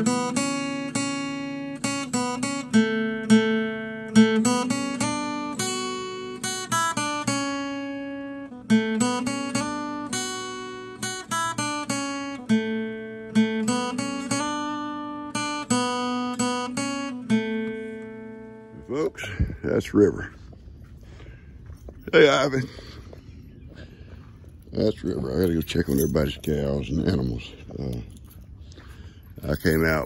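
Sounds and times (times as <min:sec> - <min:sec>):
acoustic guitar music: 0:00.0 - 0:20.3.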